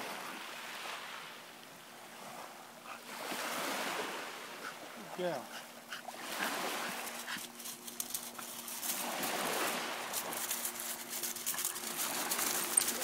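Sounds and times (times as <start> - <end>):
footsteps crunching on pebbles: 7.5 - 13.0.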